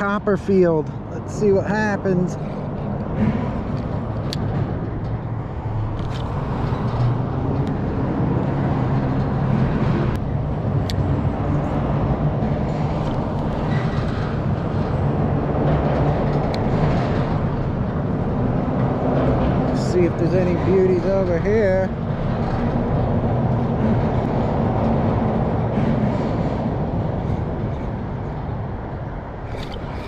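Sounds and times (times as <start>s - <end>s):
road traffic rumble: 0.0s - 30.0s.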